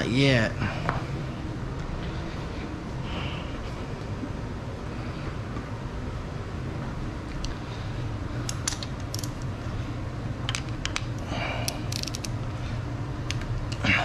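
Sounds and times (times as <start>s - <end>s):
steady low hum: 0.0s - 14.0s
metallic clicks of tools: 8.4s - 9.5s, 11.6s - 12.4s.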